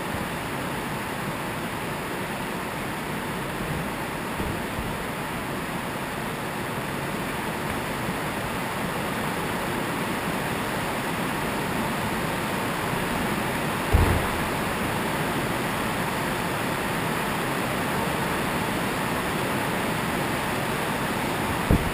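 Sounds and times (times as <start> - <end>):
body landing on sprung floor: 13.9 - 14.9, 21.7 - 21.9.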